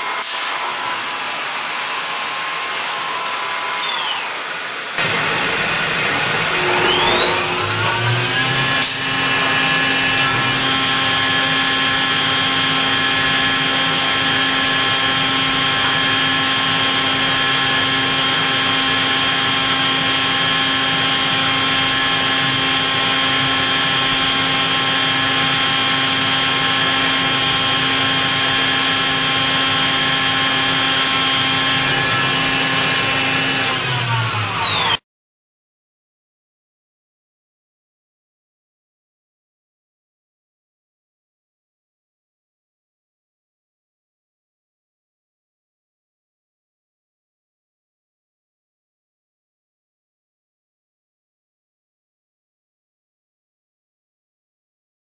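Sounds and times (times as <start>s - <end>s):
machine spindle whine: 0.0s - 35.0s.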